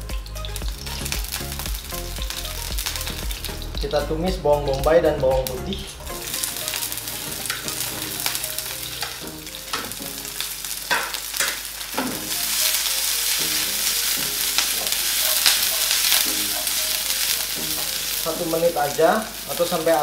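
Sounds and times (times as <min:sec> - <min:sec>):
onion sizzling in hot oil: 0:00.0 - 0:20.0
stirring strokes in pan: 0:05.7 - 0:20.0.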